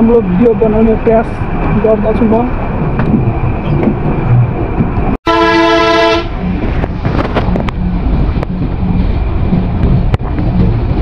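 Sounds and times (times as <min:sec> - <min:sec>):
minibus engine rumbling: 0:00.0 - 0:11.0
vehicle horn: 0:05.3 - 0:06.4.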